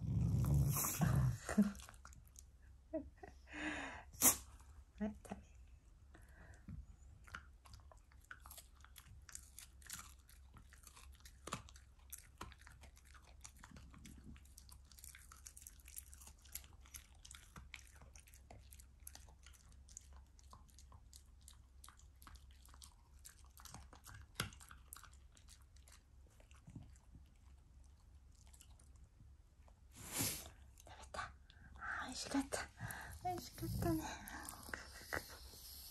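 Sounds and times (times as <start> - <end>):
dog crunching food: 7.4 - 27.5.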